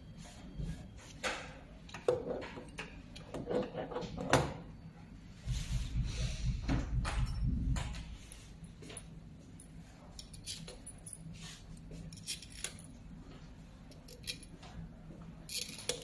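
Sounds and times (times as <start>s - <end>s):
metal parts clicking and knocking: 10.1s - 11.2s, 12.1s - 13.0s, 13.9s - 14.6s, 15.5s - 16.0s.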